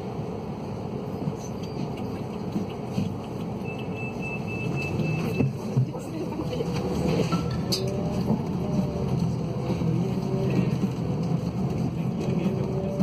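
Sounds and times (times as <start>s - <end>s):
bus engine idling: 0.0s - 13.0s
short high-pitched beeps: 3.6s - 5.5s.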